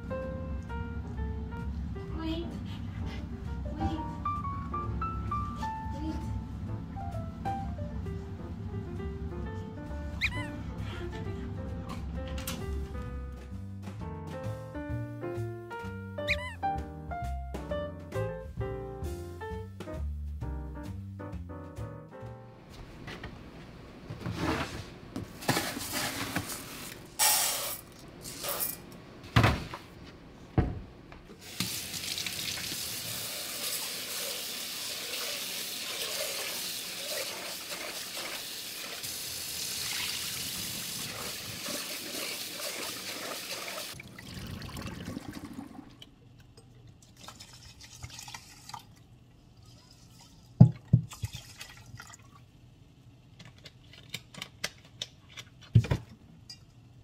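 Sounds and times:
rice rinsed by hand: 31.4 - 46.0.

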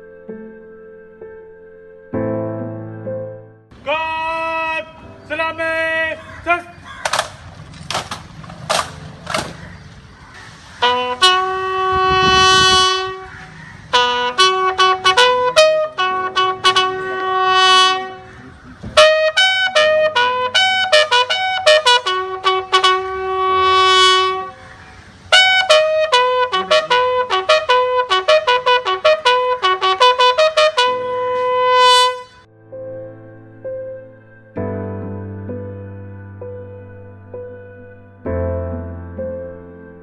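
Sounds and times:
solo bugle call: 10.8 - 18.4, 19.0 - 32.5.

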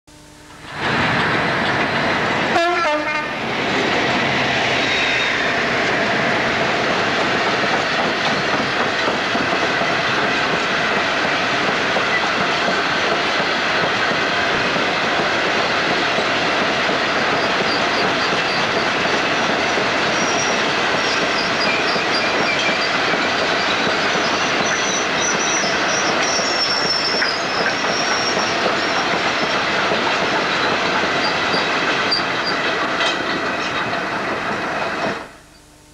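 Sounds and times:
train wheels clattering over rail joints: 5.7 - 35.3
high-pitched wheel squeal: 20.1 - 29.5.

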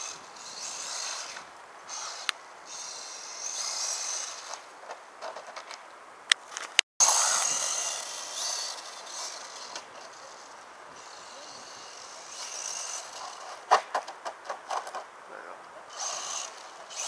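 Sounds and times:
electric motor whining: 0.0 - 4.7, 7.0 - 13.7, 15.8 - 17.0
toy truck tumbling knocks: 12.4 - 15.1.

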